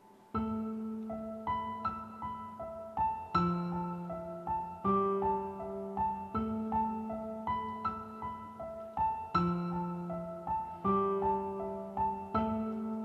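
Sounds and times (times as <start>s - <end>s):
soft piano music: 0.0s - 13.0s.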